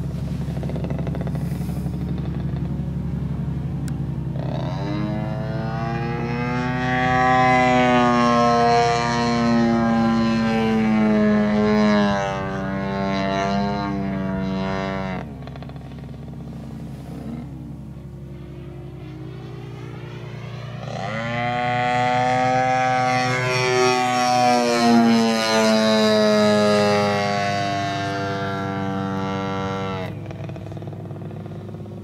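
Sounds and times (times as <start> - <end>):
model airplane engine buzzing: 0.0 - 32.0
steady low hum: 0.0 - 32.0.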